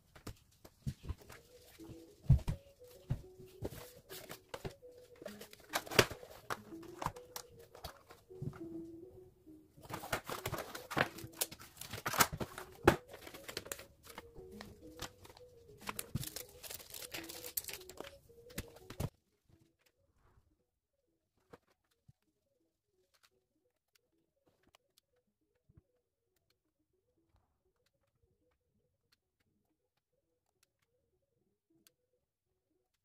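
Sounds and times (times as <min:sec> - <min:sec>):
packaging crinkling: 0:03.8 - 0:08.2, 0:09.8 - 0:19.1.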